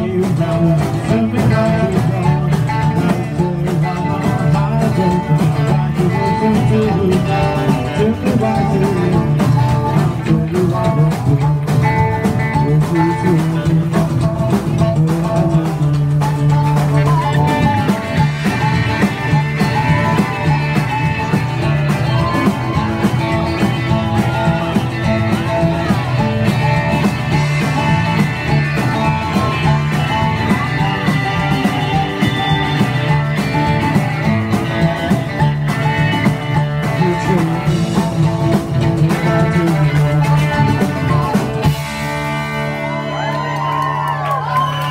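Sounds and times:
rockabilly band playing: 0.0s - 44.9s
harmonica: 15.8s - 42.0s.

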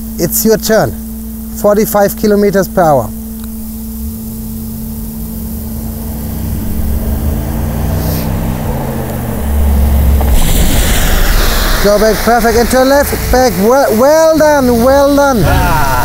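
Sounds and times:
car engine accelerating hard: 3.9s - 16.0s
water spray hiss: 9.4s - 16.0s.

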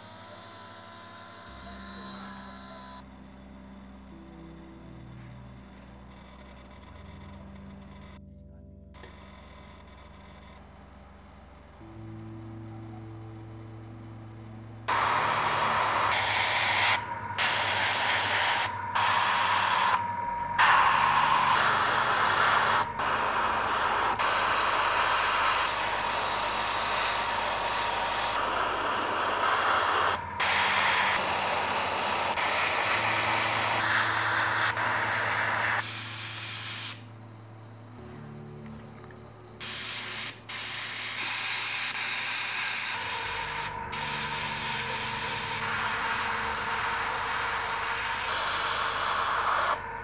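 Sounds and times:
airbrush spraying hiss: 14.9s - 37.1s, 39.6s - 49.8s.

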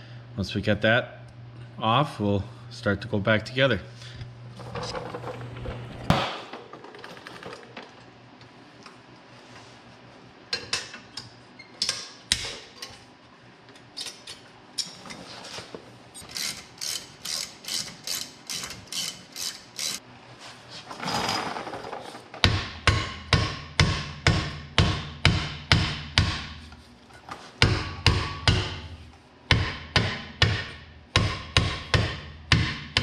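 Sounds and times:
metal tools clicking: 16.2s - 20.0s.

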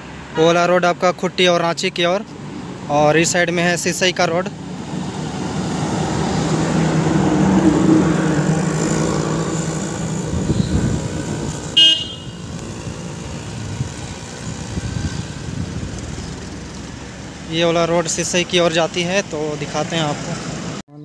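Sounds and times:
road traffic: 0.0s - 21.0s
heavy truck engine passing: 4.5s - 20.8s
vehicle horn toot: 10.4s - 11.0s, 11.7s - 12.5s.

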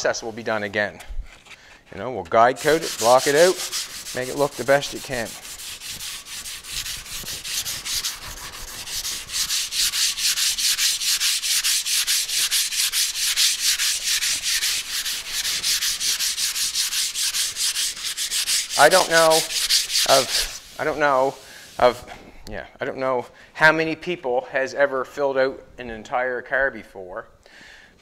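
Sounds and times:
sandpaper hand sanding: 2.6s - 22.0s.

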